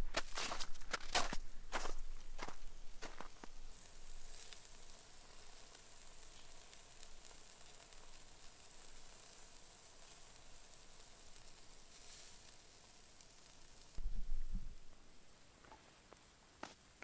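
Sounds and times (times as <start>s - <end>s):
ribs sizzling on grill: 2.2s - 15.5s.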